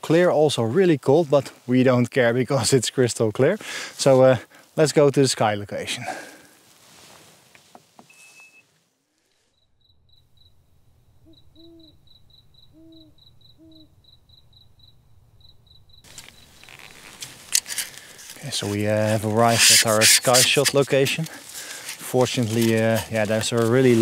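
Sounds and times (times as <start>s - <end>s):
faint hiss: 3.4s - 9.5s
cricket chirping: 9.5s - 18.4s
owl hoots: 11.1s - 14.2s.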